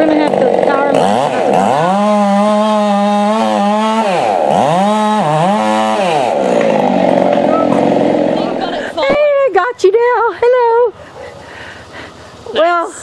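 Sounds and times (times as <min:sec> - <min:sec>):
chainsaw cutting into tree trunk: 0:00.0 - 0:09.0.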